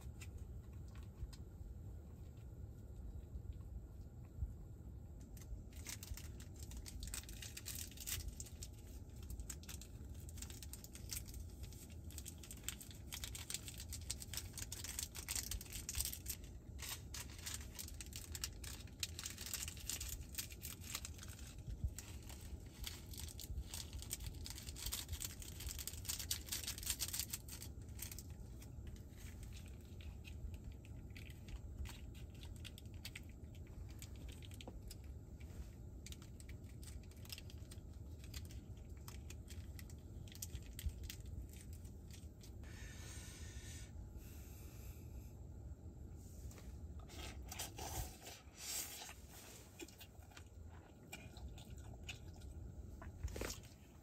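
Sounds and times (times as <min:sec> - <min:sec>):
paper lid and sachets crinkling: 0:05.3 - 0:35.1, 0:36.0 - 0:42.5, 0:47.0 - 0:53.9.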